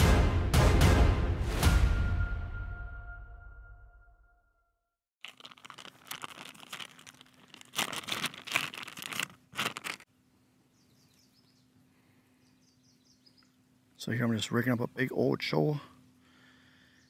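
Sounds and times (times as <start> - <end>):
plastic bag crinkling: 5.2 - 10.1
faint bird chirps: 10.6 - 13.6.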